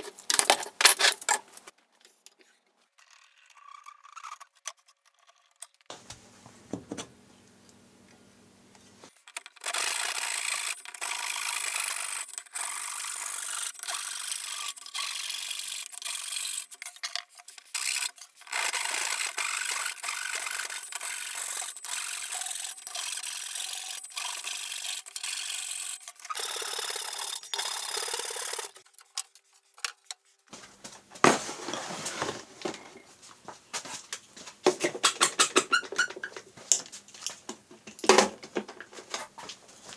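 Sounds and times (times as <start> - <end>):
handsaw cutting wood: 9.6 - 28.8.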